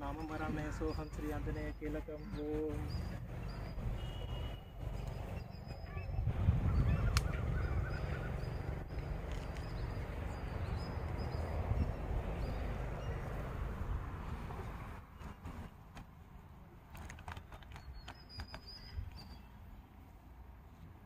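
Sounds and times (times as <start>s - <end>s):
small birds chirping: 0.0s - 15.4s, 17.4s - 20.1s
wind rumbling on microphone: 4.8s - 15.7s.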